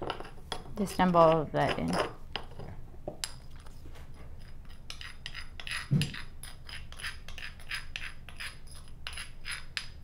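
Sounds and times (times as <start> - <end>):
metal spoon scraping stone mortar: 4.4 - 10.0.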